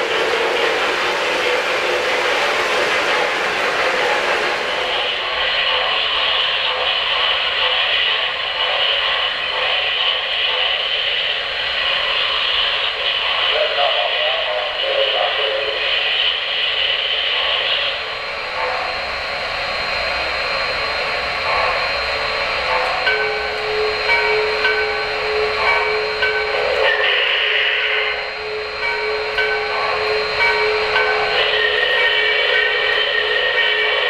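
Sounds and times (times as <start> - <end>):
steam locomotive hiss: 0.0 - 34.0.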